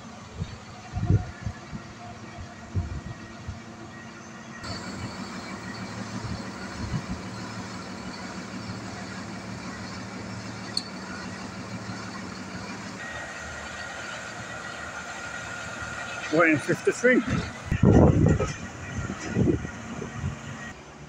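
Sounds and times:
diesel truck engine running: 0.0 - 21.0
steady low hum: 0.2 - 16.3
sharp click: 10.7 - 10.9.

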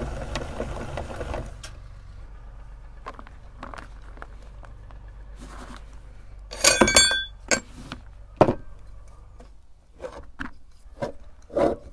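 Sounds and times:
metal grinder parts clinking: 6.5 - 7.8.

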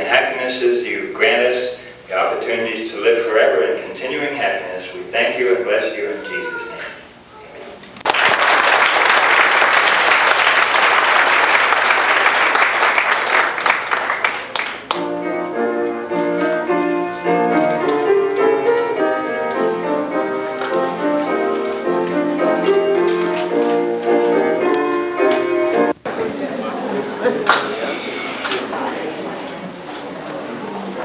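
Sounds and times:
audience applauding: 8.0 - 15.1, 27.4 - 28.6
keyboard melody: 14.9 - 26.0.

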